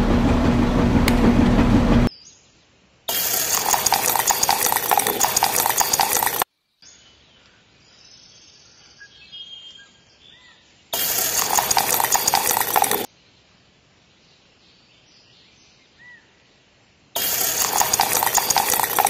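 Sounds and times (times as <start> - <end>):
wet concrete churning in mixer: 3.1 - 6.4, 11.0 - 13.1, 17.2 - 19.0.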